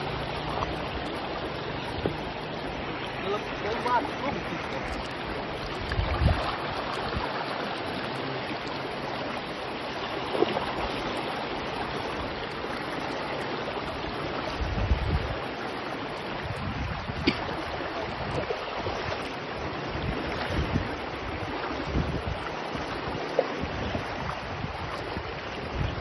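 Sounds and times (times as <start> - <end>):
river rushing over stones: 0.0 - 26.0.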